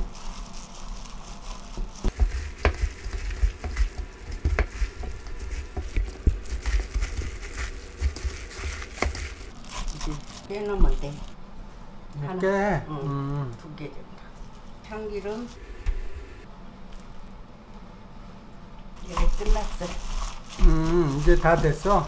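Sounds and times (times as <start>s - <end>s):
wet crackly mixing: 0.0s - 11.4s, 19.0s - 22.0s
plastic gloves rustling: 0.0s - 11.9s, 19.0s - 22.0s.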